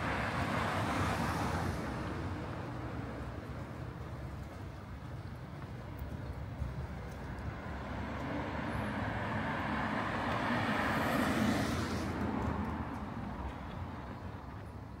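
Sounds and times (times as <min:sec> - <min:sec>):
car driving past: 0:07.9 - 0:12.7.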